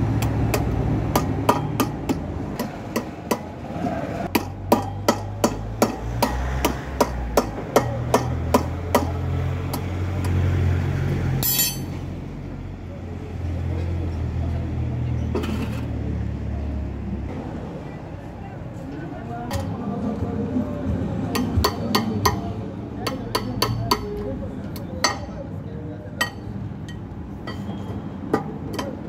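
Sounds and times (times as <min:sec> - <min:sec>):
hammer knocking on metal rod: 0:04.3 - 0:09.8.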